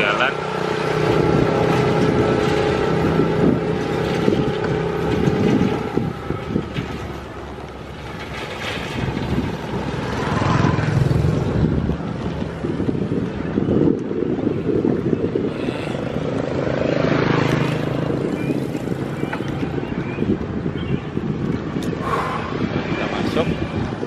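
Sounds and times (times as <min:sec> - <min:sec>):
motorcycle engine humming: 0:00.0 - 0:24.0
wind rumble on microphone: 0:00.0 - 0:24.0.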